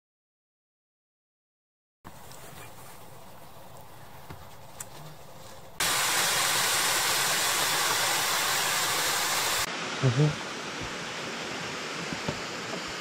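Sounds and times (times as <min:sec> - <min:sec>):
faint hiss: 0:02.1 - 0:13.0
waterfall rushing: 0:05.8 - 0:13.0.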